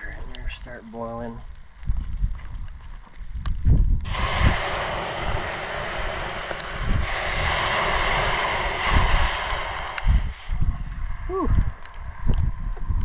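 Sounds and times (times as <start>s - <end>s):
water hissing on hot iron: 4.0s - 12.0s.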